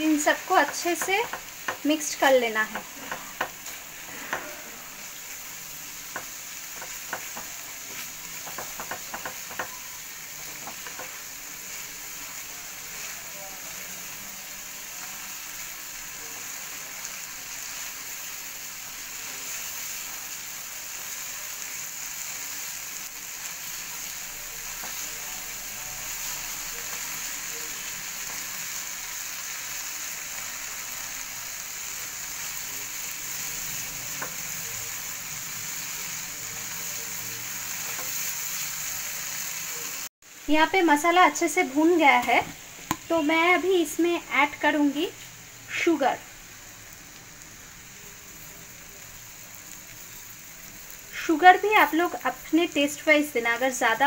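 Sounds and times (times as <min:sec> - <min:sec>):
masala sizzling in oil: 0:00.0 - 0:54.0
spatula tapping pan: 0:00.6 - 0:02.0, 0:02.6 - 0:04.5, 0:06.1 - 0:11.2.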